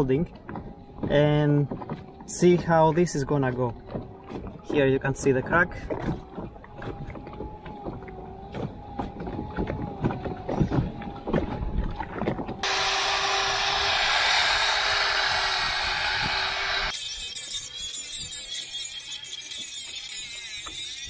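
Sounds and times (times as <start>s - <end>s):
electric grinder grinding metal: 12.6s - 21.0s.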